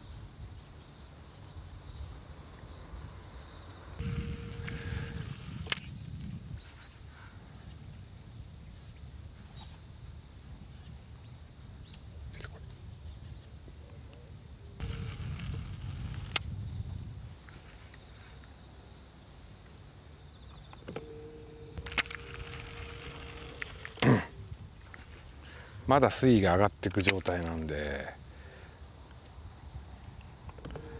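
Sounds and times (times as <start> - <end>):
insects droning: 0.0 - 30.9
sharp clicks: 4.0 - 6.0, 14.8 - 16.5, 21.8 - 24.2, 26.8 - 27.4
low steady hum: 4.0 - 6.6.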